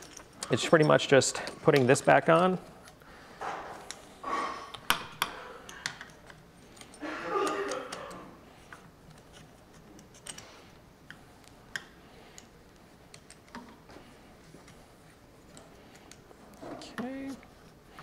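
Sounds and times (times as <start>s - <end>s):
metal parts clicking and tapping: 0.0s - 3.0s, 4.7s - 13.8s.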